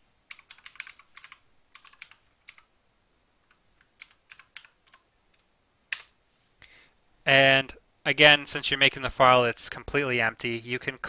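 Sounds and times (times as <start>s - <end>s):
keyboard typing: 0.3s - 2.7s, 3.4s - 6.2s.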